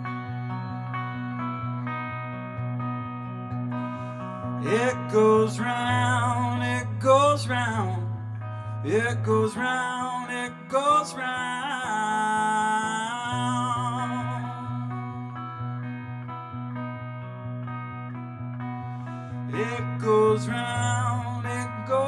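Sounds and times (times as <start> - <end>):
electric guitar chords: 0.0 - 22.0
man singing: 4.6 - 8.2, 8.8 - 15.1, 19.5 - 22.0.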